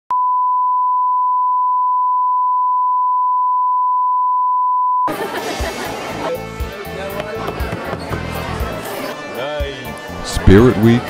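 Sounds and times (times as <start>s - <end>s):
music: 5.1s - 11.0s.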